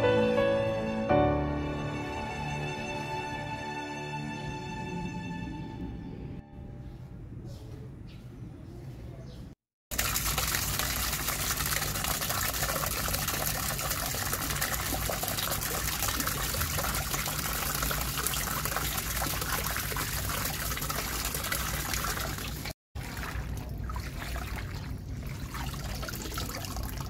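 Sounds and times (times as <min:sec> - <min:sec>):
uneven water sound: 0:09.9 - 0:27.0
water running in a stream: 0:09.9 - 0:27.0.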